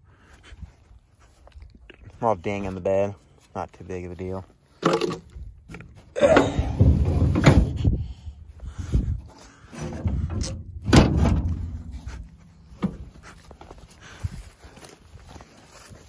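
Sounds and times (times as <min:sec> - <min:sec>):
rumbling handling noise: 0:04.5 - 0:16.0
thumps and clunks on steel: 0:04.8 - 0:08.0, 0:09.6 - 0:13.3.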